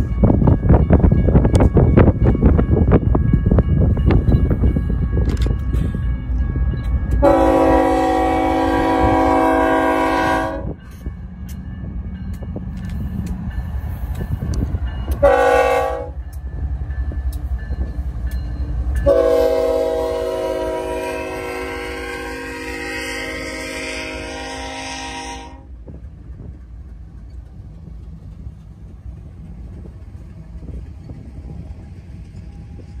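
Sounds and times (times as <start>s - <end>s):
diesel locomotives rumbling: 0.0s - 33.0s
locomotive air horn blasts: 7.2s - 10.8s, 15.2s - 16.2s, 19.0s - 25.7s.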